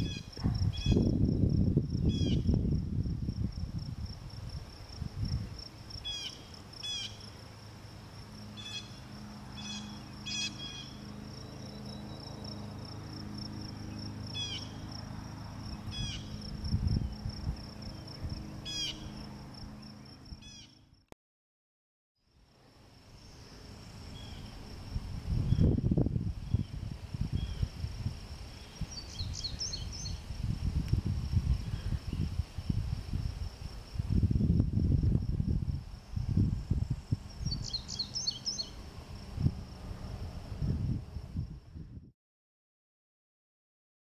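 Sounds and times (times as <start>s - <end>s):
pulsing insect trill: 0.0s - 21.0s, 22.9s - 34.0s.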